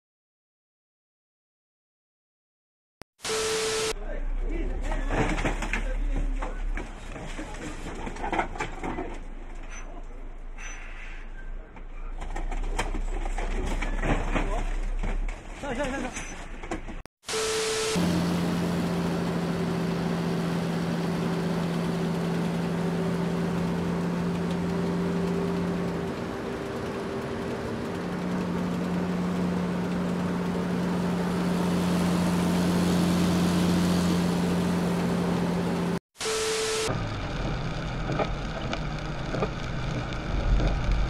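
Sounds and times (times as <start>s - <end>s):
static hiss bursts: 3.2s - 4.0s, 17.2s - 18.2s, 36.2s - 41.0s
small diesel engine running: 17.3s - 41.0s.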